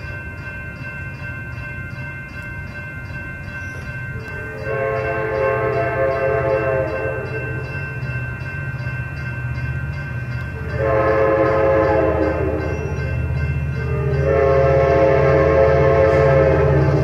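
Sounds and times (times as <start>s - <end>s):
low rumble of approaching train: 0.0s - 17.0s
railroad crossing bell ringing: 0.0s - 17.0s
train air horn: 4.6s - 7.3s, 10.7s - 12.9s, 13.8s - 17.0s.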